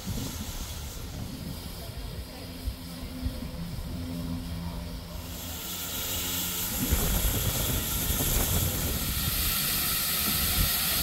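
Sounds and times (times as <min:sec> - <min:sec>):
steam hissing from locomotive: 0:00.0 - 0:02.8, 0:05.0 - 0:11.0
steady hum: 0:00.0 - 0:11.0.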